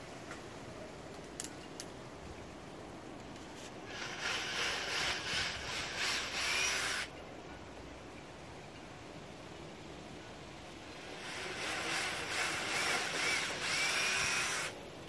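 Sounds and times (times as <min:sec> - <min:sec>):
cordless drill drilling: 0:03.9 - 0:07.1, 0:11.1 - 0:14.8.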